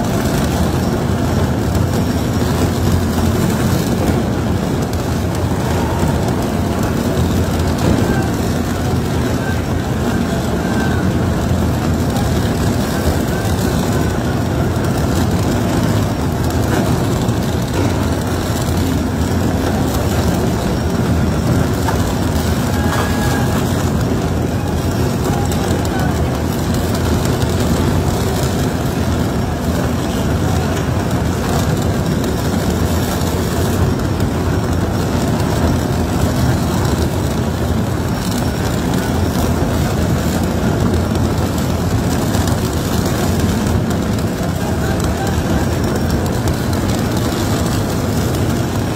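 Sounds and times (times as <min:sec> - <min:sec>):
tunnel boring machine grinding rock: 0:00.0 - 0:48.9.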